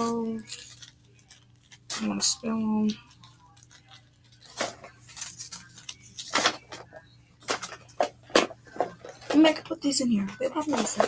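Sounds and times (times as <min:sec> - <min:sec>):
plastic containers clacking: 0:06.3 - 0:11.0.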